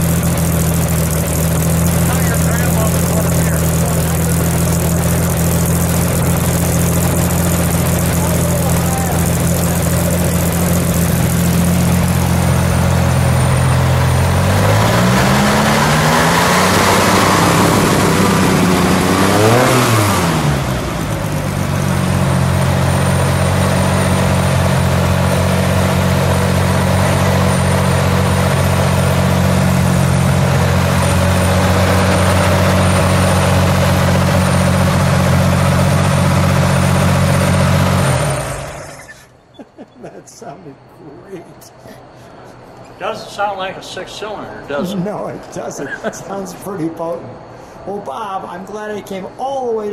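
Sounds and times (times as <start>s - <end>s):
car engine idling and revving: 0.0s - 39.4s.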